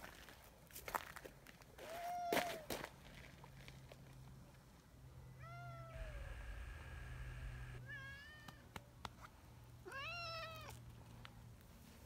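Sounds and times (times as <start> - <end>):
cat meowing: 5.4 - 6.4, 9.9 - 10.8.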